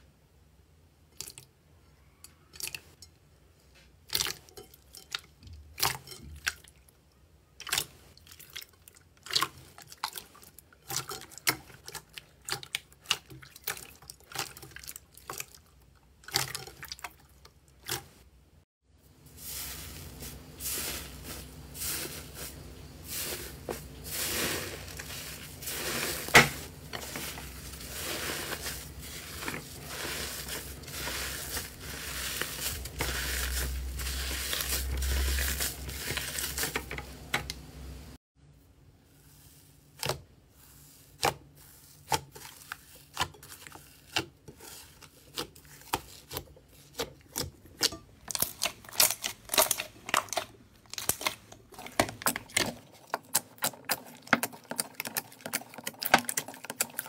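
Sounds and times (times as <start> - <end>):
crunchy slime crackling: 19.5 - 36.8.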